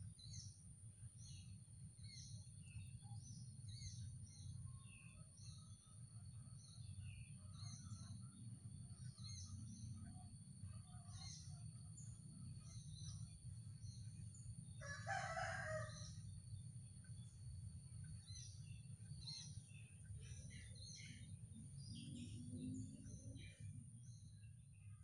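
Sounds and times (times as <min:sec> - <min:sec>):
low steady hum: 0:00.0 - 0:25.0.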